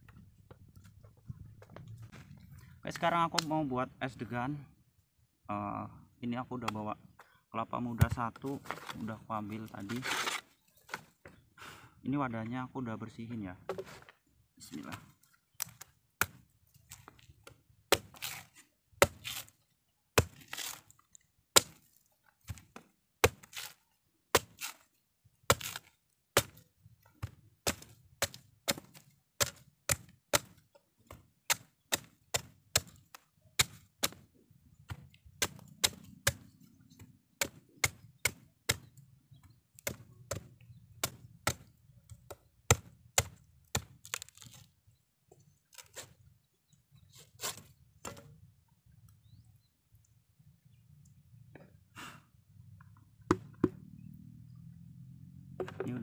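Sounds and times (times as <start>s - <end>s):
machete chopping coconut: 15.6s - 17.2s, 17.9s - 19.5s, 20.2s - 20.8s, 21.5s - 21.9s, 22.5s - 24.8s, 25.5s - 26.6s, 27.2s - 39.0s, 39.8s - 44.7s, 53.3s - 53.8s.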